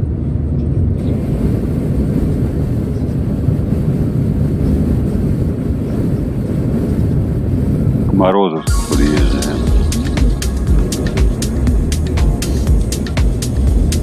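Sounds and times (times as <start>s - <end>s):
car driving at highway speed: 9.6s - 14.0s.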